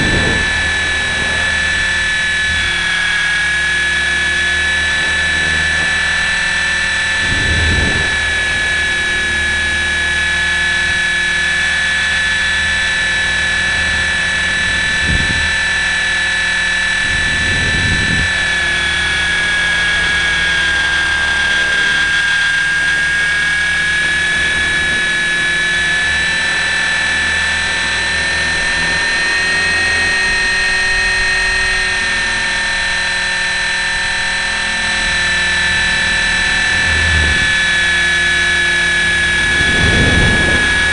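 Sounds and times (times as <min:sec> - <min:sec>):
rc helicopter rotor whining: 0:00.0 - 0:40.9
low thumps: 0:33.6 - 0:40.9.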